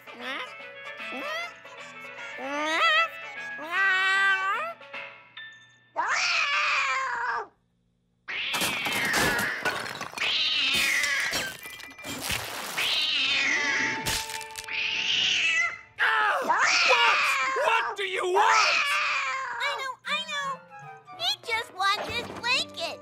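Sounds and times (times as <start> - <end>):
cartoon cat yowling: 6.0 - 7.5, 14.9 - 19.7
glass and china breaking: 8.6 - 12.8.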